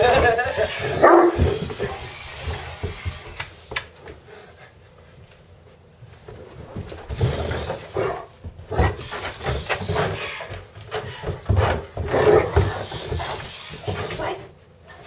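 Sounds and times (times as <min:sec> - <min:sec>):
dog play-growling: 0:06.3 - 0:15.0.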